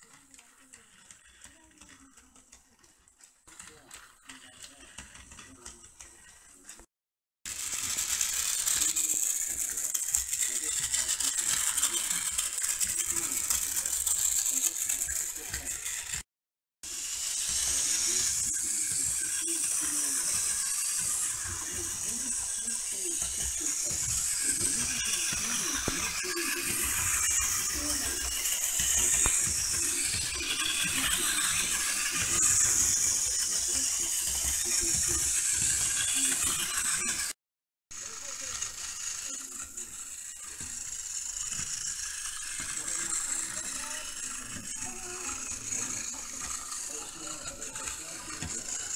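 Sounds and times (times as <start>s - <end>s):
toy train motor rattling whir: 0.0s - 6.9s, 7.5s - 48.9s.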